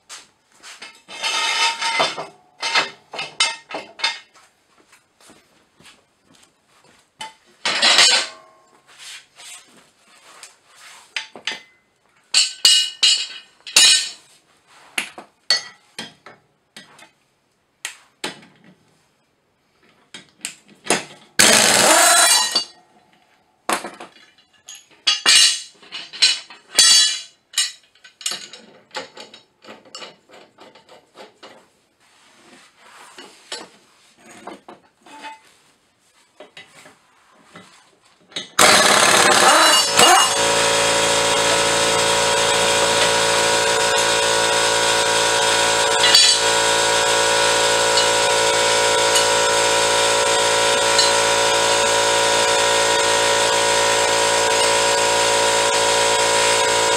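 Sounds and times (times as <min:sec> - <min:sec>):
metal tools clinking and knocking: 0:00.8 - 0:04.4, 0:07.2 - 0:08.5, 0:11.2 - 0:14.3, 0:23.8 - 0:31.5
air impact wrench burst: 0:21.4 - 0:22.6, 0:38.6 - 0:56.9.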